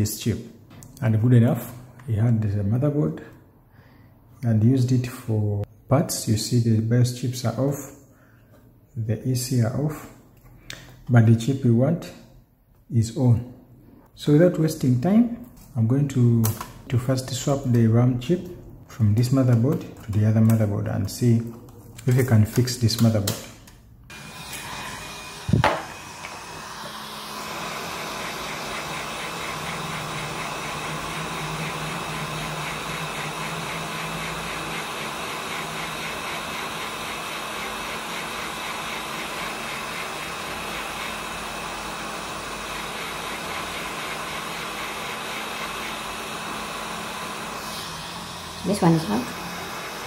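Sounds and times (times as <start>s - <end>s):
hot air station blowing: 24.1s - 50.0s.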